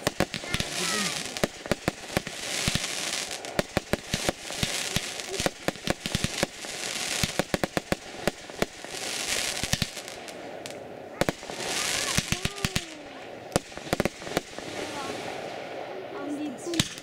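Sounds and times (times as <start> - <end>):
fireworks bangs and crackling: 0.0 - 17.0
fireworks hiss: 0.0 - 17.0.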